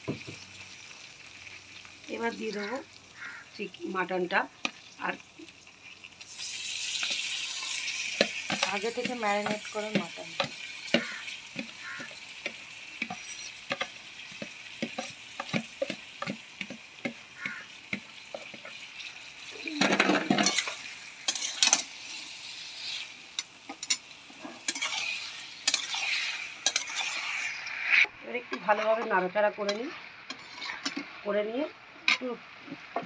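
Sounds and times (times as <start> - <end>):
meat sizzling in hot oil: 0.0 - 28.1, 29.1 - 33.0
metal spatula scraping a pan: 5.8 - 19.1, 19.7 - 31.2.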